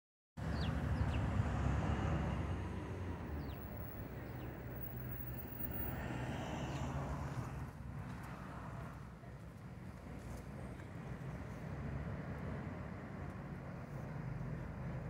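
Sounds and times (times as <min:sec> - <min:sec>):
sparrows chirping: 0:00.4 - 0:01.3, 0:03.4 - 0:05.6.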